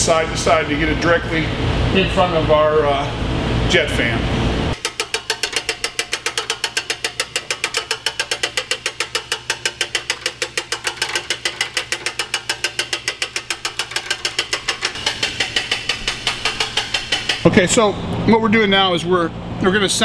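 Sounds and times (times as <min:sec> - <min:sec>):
hand-cranked winch ratcheting: 0:04.8 - 0:17.9.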